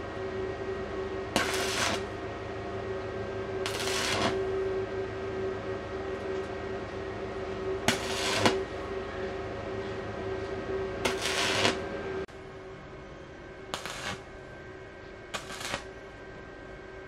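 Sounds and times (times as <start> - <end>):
welding arc buzzing: 1.3 - 2.2, 3.6 - 4.7, 7.8 - 8.9, 11.0 - 12.3, 13.7 - 14.4, 15.3 - 16.0
welding arc hissing bursts: 1.4 - 2.0, 3.7 - 4.4, 7.9 - 8.6, 11.1 - 11.8, 13.8 - 14.2, 15.4 - 15.9.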